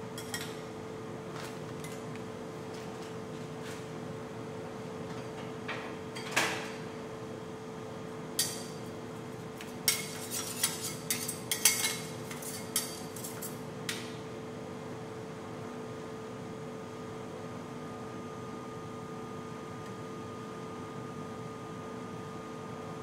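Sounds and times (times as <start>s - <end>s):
steady hum: 0.0s - 6.0s
metal spatulas clinking on steel: 9.9s - 13.6s.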